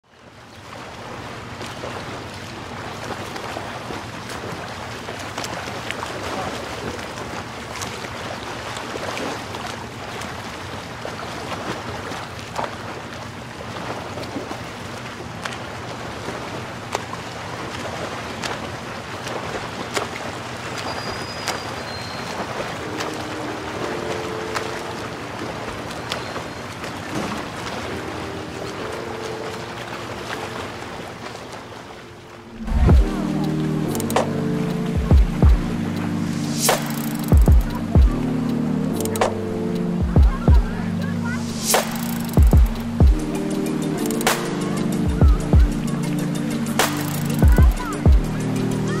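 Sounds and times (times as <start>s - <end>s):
wind: 0.0s - 49.0s
surf breaking: 17.9s - 38.2s, 39.2s - 49.0s
faint clicks: 36.6s - 37.8s, 38.9s - 39.8s, 41.6s - 42.9s, 43.9s - 44.6s, 46.8s - 47.6s.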